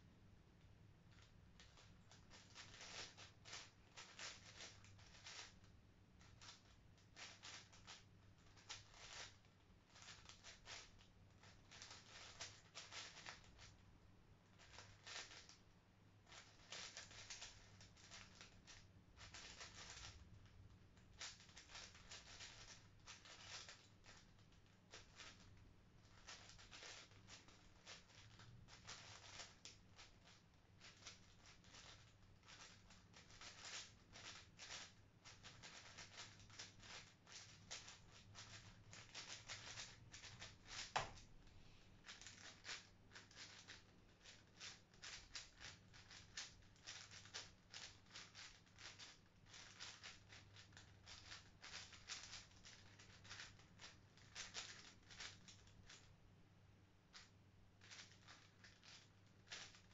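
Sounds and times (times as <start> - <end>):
faint steady hum: 0.0 - 59.9
puzzle cube clicking: 23.4 - 23.8, 30.9 - 41.3, 42.1 - 53.5.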